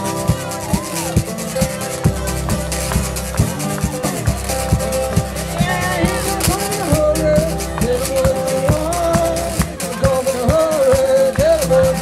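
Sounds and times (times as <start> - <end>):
acoustic guitar strumming: 0.0 - 12.0
man singing: 5.4 - 12.0.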